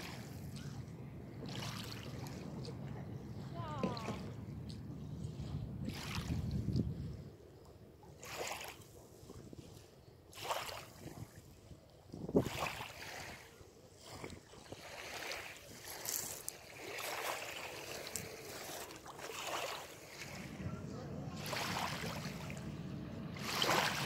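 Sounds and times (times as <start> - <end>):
waves lapping on pebble shore: 0.0 - 0.4, 8.2 - 8.9, 10.3 - 11.3, 12.4 - 20.7, 21.3 - 22.7, 23.3 - 24.0
wind on microphone: 0.0 - 8.4, 9.0 - 16.4, 20.0 - 24.0.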